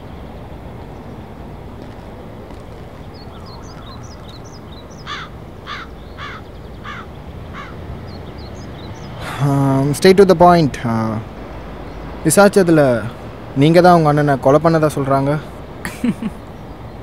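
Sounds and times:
small birds chirping: 0.0 - 17.0
steady background noise: 0.0 - 17.0
crow cawing: 3.3 - 7.8.

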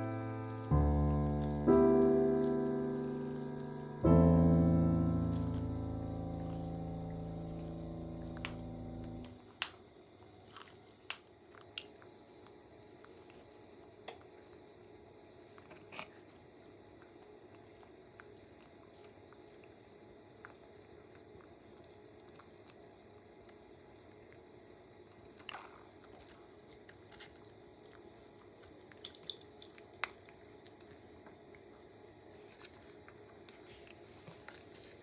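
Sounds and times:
background music: 0.0 - 9.3
tortoises chewing greens: 0.0 - 35.0.

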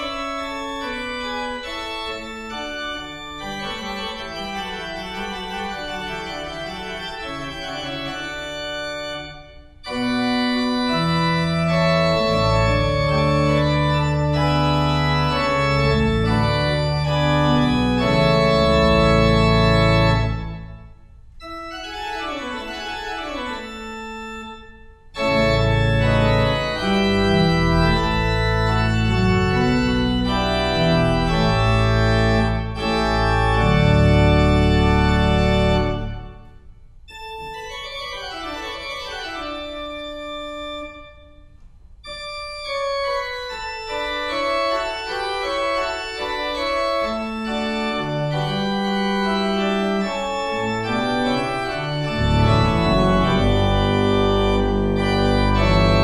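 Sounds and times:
pipe organ playing toccata: 0.0 - 56.0
deep pedal bass notes: 50.8 - 56.0.

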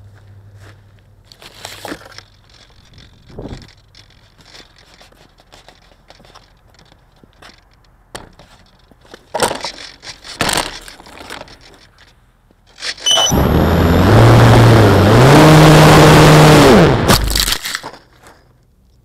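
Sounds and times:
handling noise on microphone: 0.6 - 13.3.

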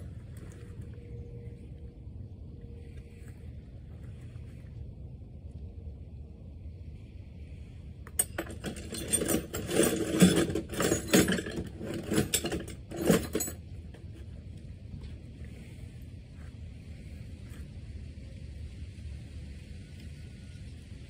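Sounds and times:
metal parts clinking and clattering: 8.1 - 14.2.

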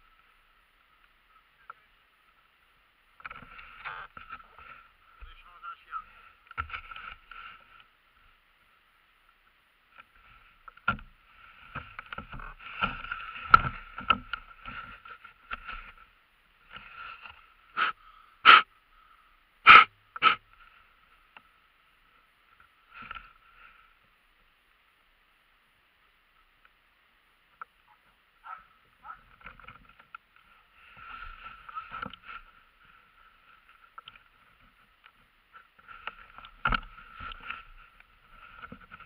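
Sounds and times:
dogs yelping: 27.9 - 29.3.

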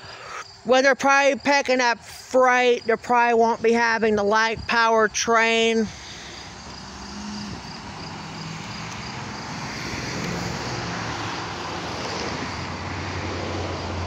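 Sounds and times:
vehicle engine and tyre noise: 5.9 - 14.0.

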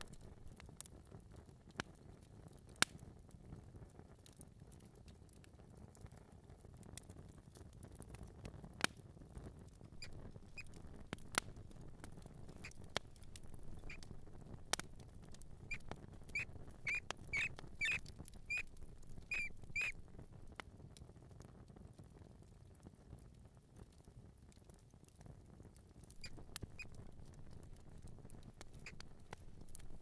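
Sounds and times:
mouse squeaking: 10.0 - 10.8, 12.5 - 14.2, 15.3 - 20.0, 26.2 - 27.1, 28.7 - 30.0
light pattering: 10.0 - 20.6, 26.0 - 30.0.

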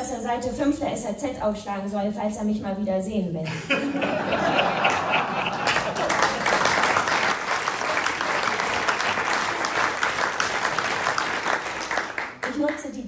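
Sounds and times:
audience clapping: 4.5 - 13.0.

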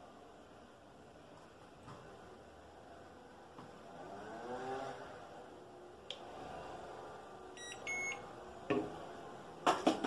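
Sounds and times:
remote controller beeps: 7.6 - 8.2.

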